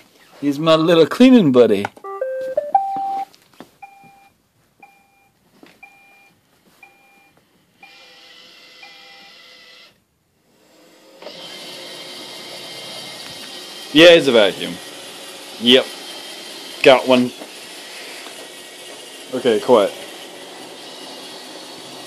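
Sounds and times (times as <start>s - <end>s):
robot vacuum beeping: 2.0s - 4.2s
robot vacuum motor whirring: 7.8s - 22.0s.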